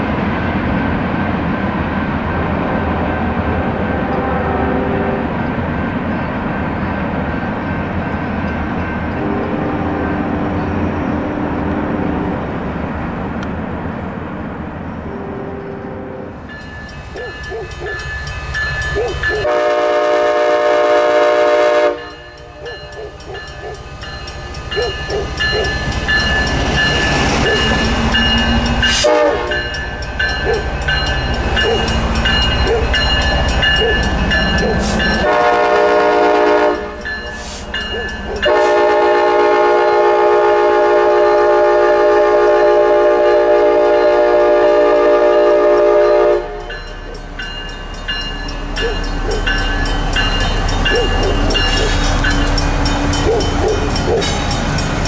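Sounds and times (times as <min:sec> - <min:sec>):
train engine and wheel rumble: 0:00.0 - 0:55.0
locomotive horn blasts: 0:02.4 - 0:05.4, 0:09.2 - 0:12.5, 0:15.1 - 0:16.4, 0:19.4 - 0:22.7, 0:29.0 - 0:29.8, 0:35.1 - 0:37.1, 0:38.4 - 0:46.6.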